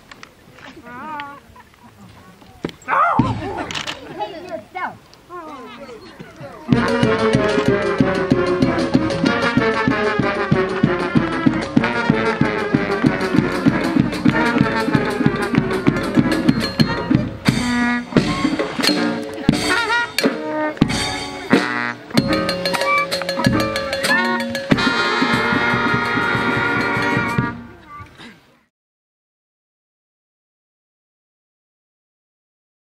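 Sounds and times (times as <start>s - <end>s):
fast steady drumbeat: 3.2s - 3.6s, 6.6s - 27.8s
brass band playing: 6.6s - 27.9s.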